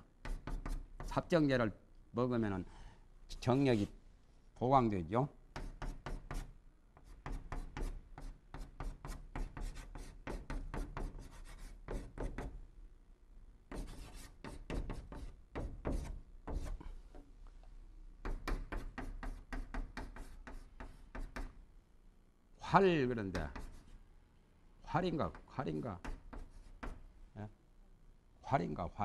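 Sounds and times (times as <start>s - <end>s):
chalk writing on blackboard: 0.2s - 1.3s, 5.5s - 12.6s, 13.7s - 17.0s, 18.2s - 21.6s, 23.3s - 24.0s, 26.0s - 27.0s.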